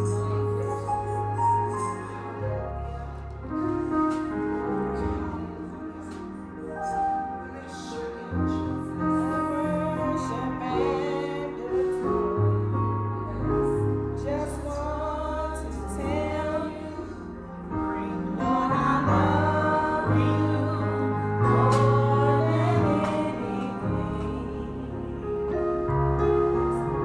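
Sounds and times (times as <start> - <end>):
electric keyboard chords: 0.0 - 27.0
woman singing gospel song: 4.9 - 12.5, 14.2 - 25.3.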